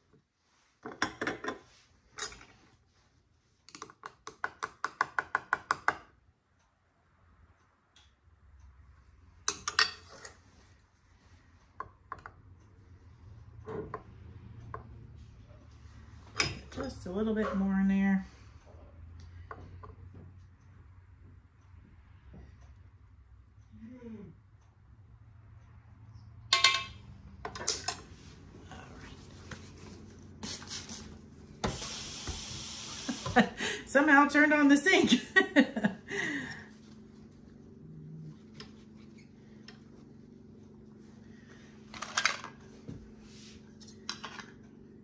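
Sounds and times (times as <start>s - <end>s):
low steady hum: 6.2s - 45.0s
tap water running: 31.6s - 33.5s.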